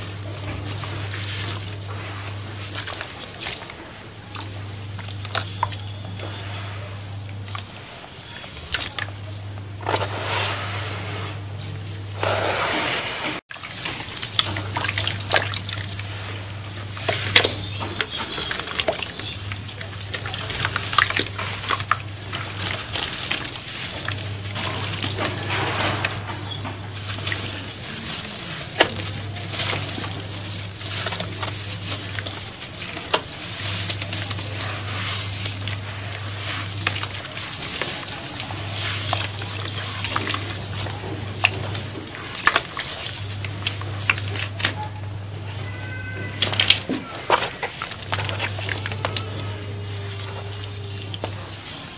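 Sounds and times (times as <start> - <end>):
hands sloshing in water: 13.5 - 44.8, 46.4 - 51.7
small water splashes: 13.5 - 44.8, 46.4 - 51.5.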